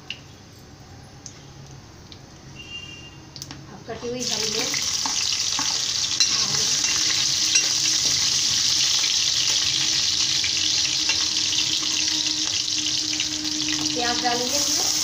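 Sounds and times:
chillies sizzling in hot oil: 3.7 - 15.0.

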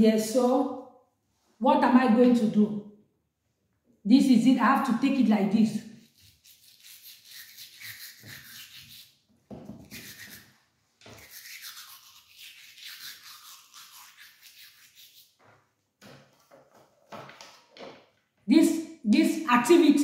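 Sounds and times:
toothbrush scrubbing teeth: 5.9 - 15.4.

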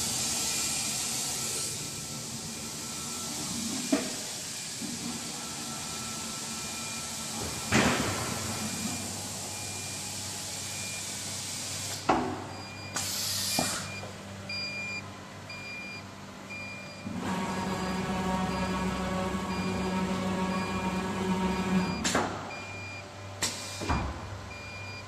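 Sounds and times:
machine hum: 14.3 - 25.0
short beeps: 17.8 - 23.0.

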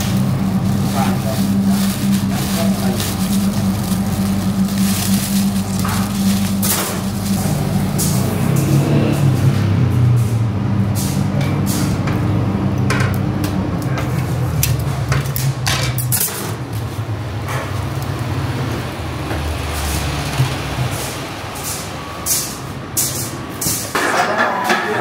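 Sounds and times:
bread rustling: 0.0 - 8.0
metal skewers scraping and clinking: 0.0 - 9.5, 15.4 - 16.6
steady low rumble: 0.0 - 22.2.

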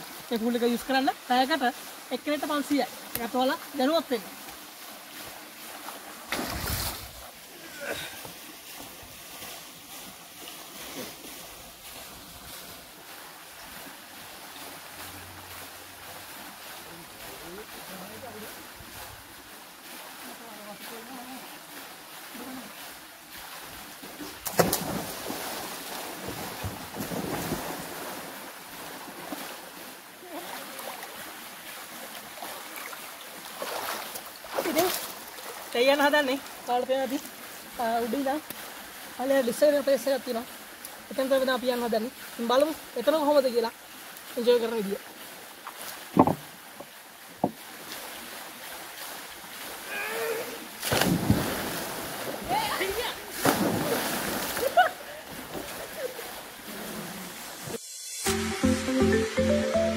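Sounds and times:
splashing in water: 1.7 - 39.2, 43.8 - 57.8
loud splash into pool: 6.3 - 7.2, 24.3 - 28.4, 49.8 - 55.9
sharp knocks: 46.2 - 46.4
person shouting: 49.9 - 50.7.

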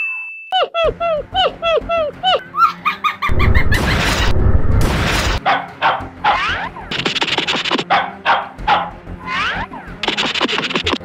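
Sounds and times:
background music: 0.6 - 11.0
loud whoosh: 3.3 - 5.4
dog barking and yipping: 5.4 - 11.0.

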